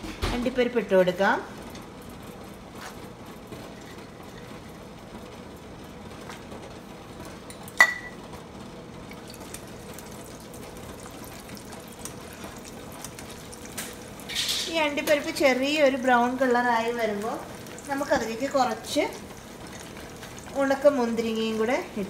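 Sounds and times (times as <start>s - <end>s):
nuts sizzling in oil: 9.0s - 22.0s.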